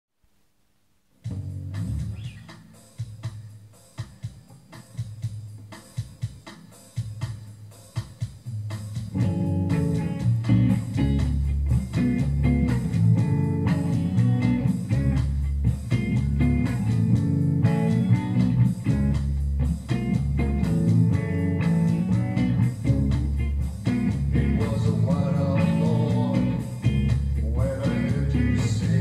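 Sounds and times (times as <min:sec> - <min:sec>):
bass guitar: 0:01.2 - 0:03.4, 0:08.5 - 0:29.0
drum machine beat: 0:01.2 - 0:29.0
electric guitar: 0:09.1 - 0:29.0.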